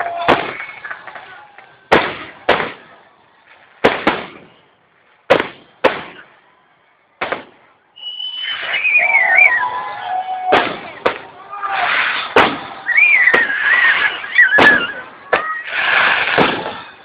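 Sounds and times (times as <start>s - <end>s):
wavering high whistle: 8.0s - 10.5s, 12.2s - 16.2s
firework shells bursting: 10.5s - 17.0s.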